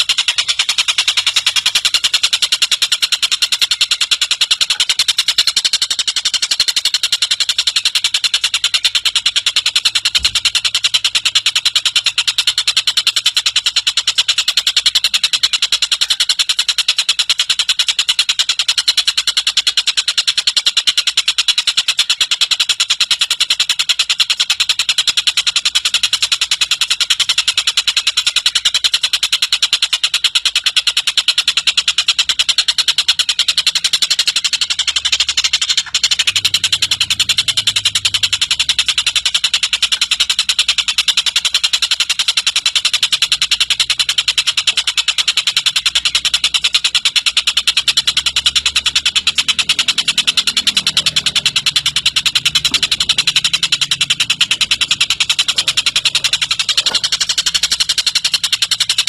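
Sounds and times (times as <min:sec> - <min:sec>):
kingfisher rattling call: 0:00.0 - 0:59.0.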